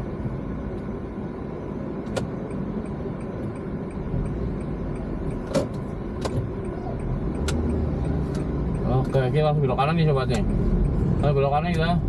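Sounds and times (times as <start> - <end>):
car driving slowly interior: 0.0 - 12.0
faint ticking: 2.1 - 12.0
sharp clicks: 5.0 - 9.3.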